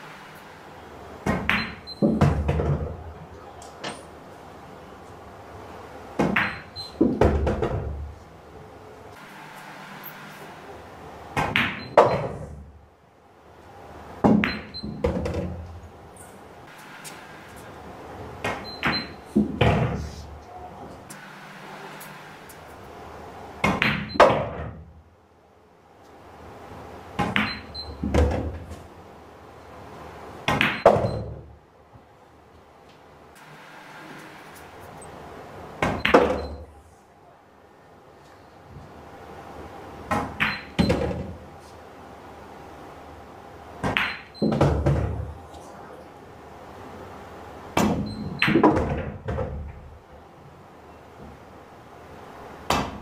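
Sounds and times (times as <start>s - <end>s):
low hall hum: 0.0s - 53.0s
pool balls clacking: 1.2s - 4.2s, 6.1s - 8.1s, 11.3s - 12.6s, 14.2s - 20.2s, 23.6s - 24.9s, 27.1s - 28.9s, 30.4s - 31.5s, 35.7s - 36.7s, 40.0s - 41.5s, 43.8s - 45.4s, 47.7s - 50.0s.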